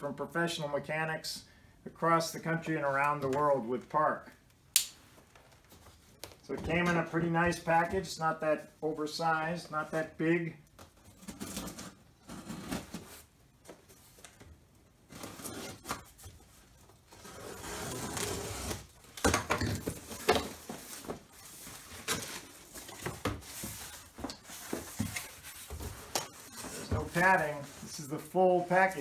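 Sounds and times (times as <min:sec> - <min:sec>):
cardboard and plastic rustling: 0:10.8 - 0:29.0.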